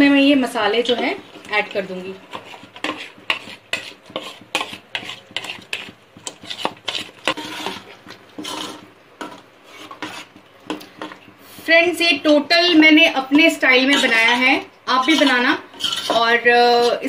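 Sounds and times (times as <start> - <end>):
steel spoon scraping pot: 0.9 - 11.2, 12.7 - 17.0.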